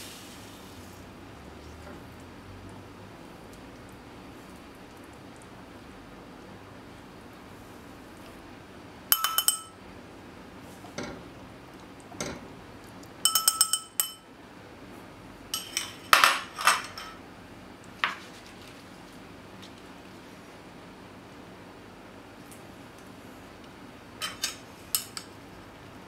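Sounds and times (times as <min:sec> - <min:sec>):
dishes and utensils clinking: 0:09.1 - 0:09.8, 0:13.2 - 0:14.3, 0:15.6 - 0:17.2, 0:24.2 - 0:25.3.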